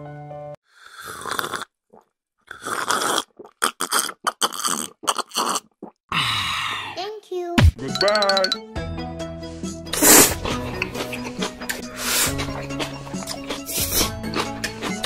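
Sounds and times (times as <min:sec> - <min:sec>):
cartoon slurping sips: 0:00.7 - 0:07.0, 0:09.9 - 0:15.0
cartoon gulps: 0:00.9 - 0:07.0.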